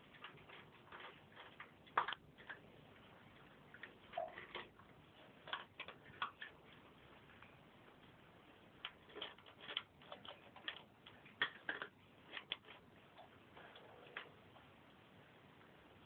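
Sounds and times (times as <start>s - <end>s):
cats chewing and crunching: 0.0s - 16.0s.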